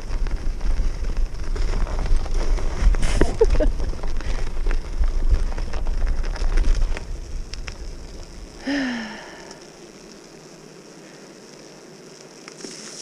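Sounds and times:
bicycle tyres crunching slush and ice: 0:00.0 - 0:09.4, 0:12.6 - 0:13.0.

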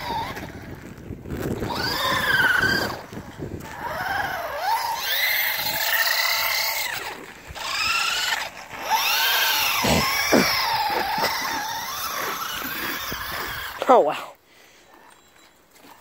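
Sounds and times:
electric motor whining: 0:00.0 - 0:13.9.

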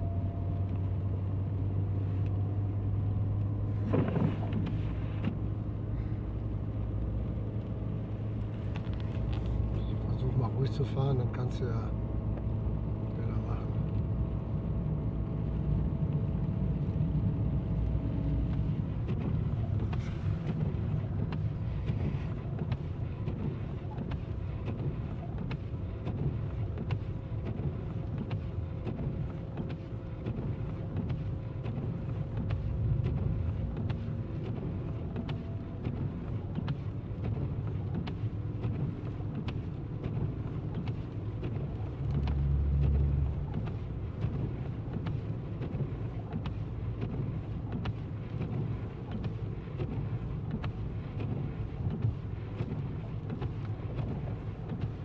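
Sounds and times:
car engine and tyres rumbling: 0:00.0 - 0:55.0.

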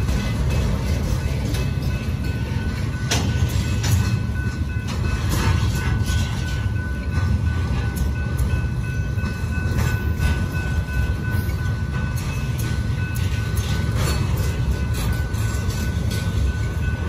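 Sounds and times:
train wheels rumbling on rail: 0:00.0 - 0:17.0
clicks and clanks: 0:03.1 - 0:04.2.

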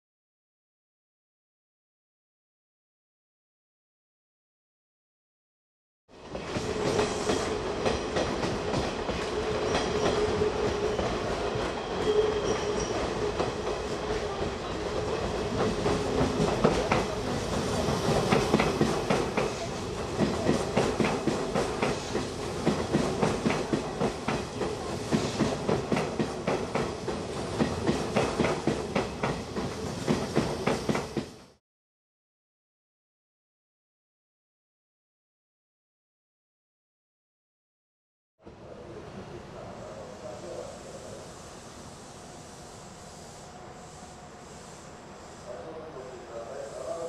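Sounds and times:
electric train running past: 0:06.1 - 0:31.6, 0:38.4 - 0:47.0.

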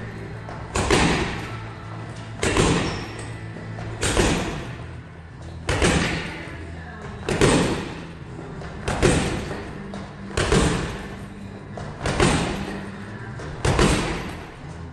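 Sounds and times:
background music: 0:00.0 - 0:14.9
gloved punches on punch bag: 0:00.7 - 0:01.6, 0:02.4 - 0:03.2, 0:04.0 - 0:04.9, 0:05.7 - 0:06.4, 0:07.3 - 0:08.2, 0:08.8 - 0:09.7, 0:10.3 - 0:11.1, 0:12.0 - 0:12.7, 0:13.6 - 0:14.5.

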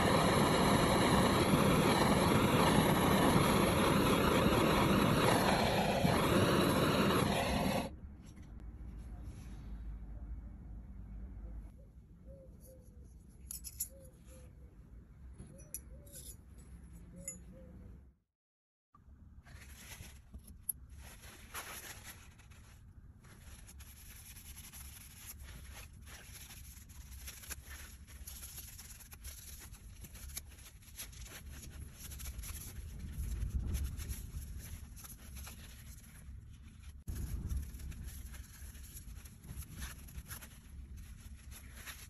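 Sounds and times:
paper towel rustling and rubbing: 0:19.4 - 0:42.0.

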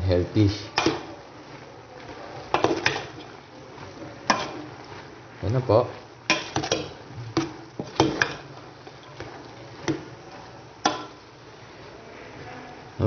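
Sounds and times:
spoon clinking on metal pot: 0:06.3 - 0:08.4, 0:10.8 - 0:11.2.

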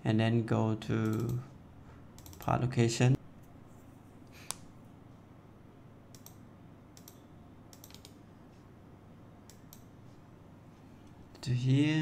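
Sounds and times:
faint room noise: 0:00.0 - 0:12.0
mouse and keyboard clicks: 0:07.0 - 0:08.2.

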